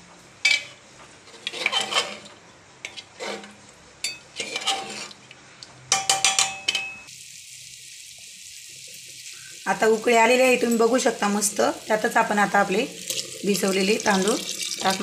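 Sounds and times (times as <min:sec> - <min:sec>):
metal ladle scraping a pot: 0:00.4 - 0:05.3.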